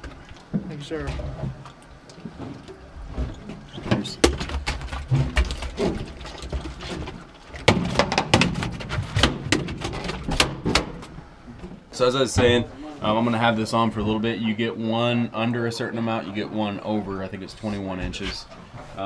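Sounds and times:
knocks and thumps on metal deck: 3.8s - 11.1s.

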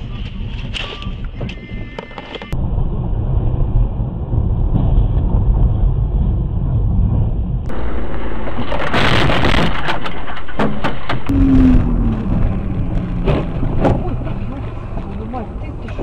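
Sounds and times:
road and engine rumble: 0.0s - 16.0s.

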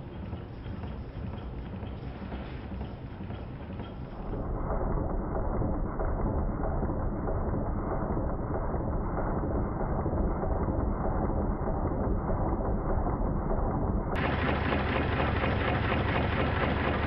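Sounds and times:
steam engine running fast: 14.2s - 17.0s.

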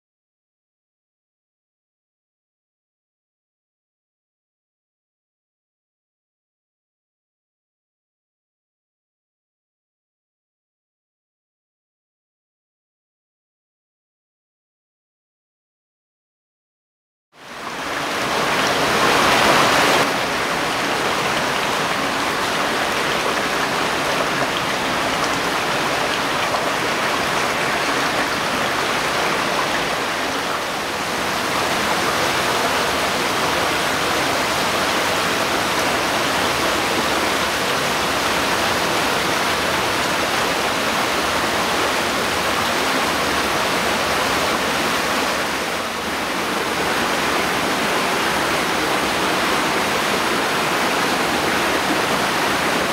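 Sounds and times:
stream rushing over rocks: 17.4s - 52.9s.

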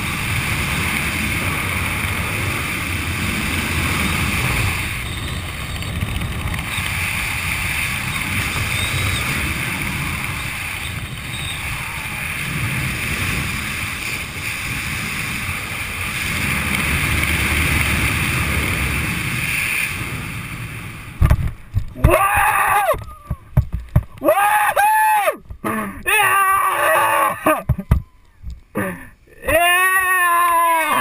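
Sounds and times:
wind buffeting microphone: 0.0s - 24.2s.

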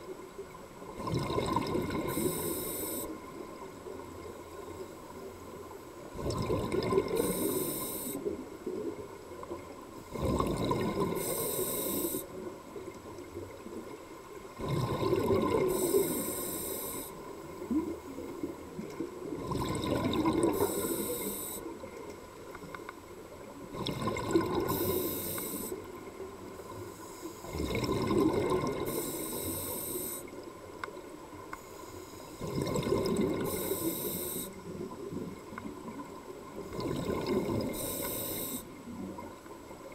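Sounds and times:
exhaled bubbles burbling: 0.9s - 2.4s, 6.1s - 7.5s, 10.1s - 11.4s, 14.5s - 16.2s, 17.5s - 21.0s, 23.6s - 25.8s, 27.4s - 29.1s, 32.4s - 33.8s, 34.6s - 38.0s
regulator breathing hiss: 2.1s - 3.2s, 7.1s - 8.3s, 11.2s - 12.3s, 15.7s - 17.2s, 20.5s - 21.7s, 24.7s - 25.8s, 26.7s - 27.5s, 28.8s - 30.3s, 33.4s - 34.6s, 37.7s - 38.7s.

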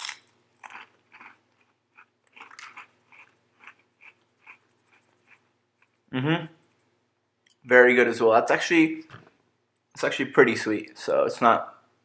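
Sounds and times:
person chewing crunchy cookie: 0.0s - 6.1s.

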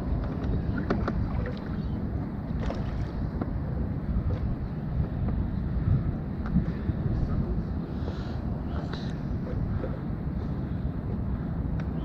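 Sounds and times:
water along hull: 0.0s - 12.0s
wind on microphone: 0.0s - 12.0s
boat clicks and knocks: 0.1s - 1.7s, 2.6s - 5.5s.

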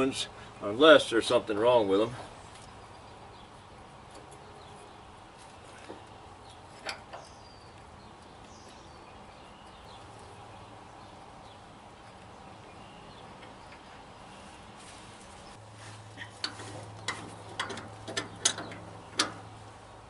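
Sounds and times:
birds chirping faintly: 0.0s - 20.0s
wrench metal clicks: 16.4s - 19.4s.

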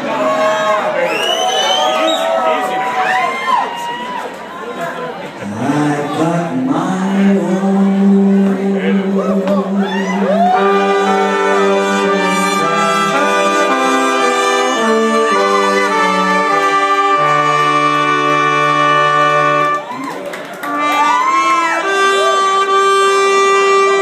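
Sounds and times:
person singing: 5.4s - 17.8s
horn section playing chords: 10.2s - 19.9s, 20.6s - 24.0s.

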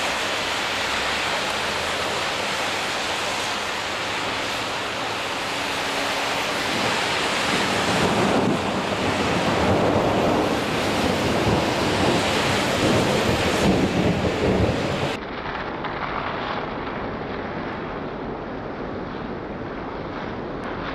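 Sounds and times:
vehicles driving through water: 0.0s - 15.2s
steady rain: 0.0s - 20.9s.

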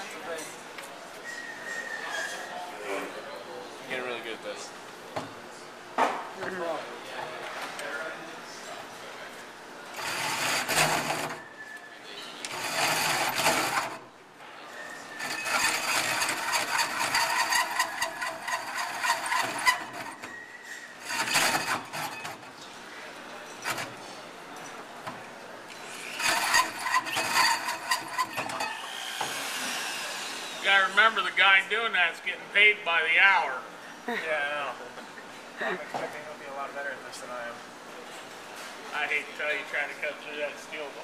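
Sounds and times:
drill hole saw cutting steel: 10.0s - 11.4s, 12.5s - 14.0s, 15.2s - 20.3s, 21.0s - 22.4s, 25.8s - 30.6s.

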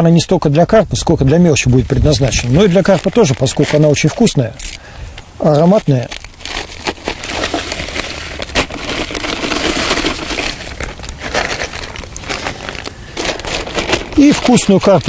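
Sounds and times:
packet crinkling: 2.1s - 15.0s
dry crumb mix pouring: 6.6s - 12.5s.

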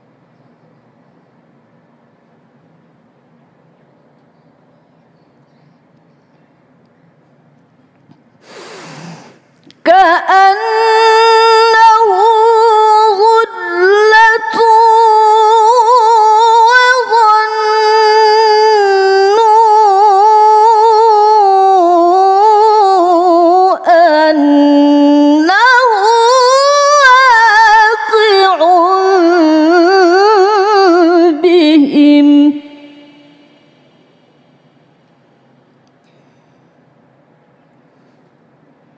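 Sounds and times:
woman reciting melodically: 9.7s - 33.8s.

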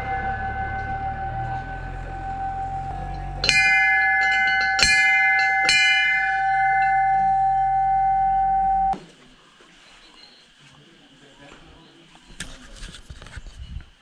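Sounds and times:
temple bells ringing: 0.0s - 9.0s.

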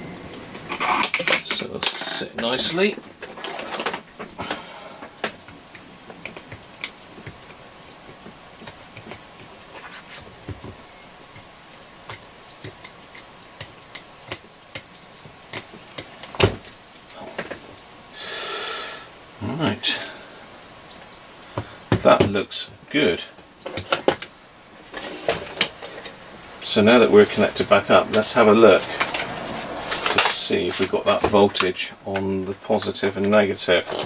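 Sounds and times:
small tools clicking and tapping: 0.7s - 9.5s, 10.4s - 17.6s
breathy hiss: 4.4s - 5.4s, 18.1s - 20.8s, 21.4s - 22.0s.

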